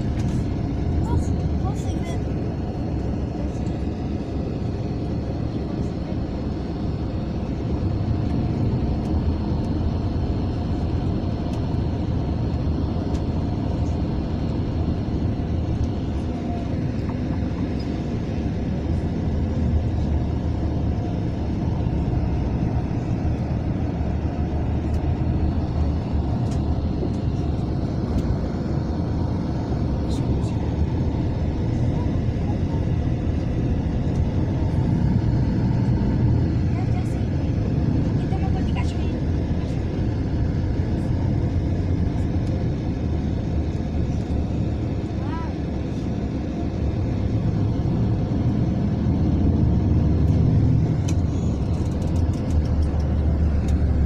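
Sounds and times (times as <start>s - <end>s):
coach engine and road noise: 0.0s - 54.0s.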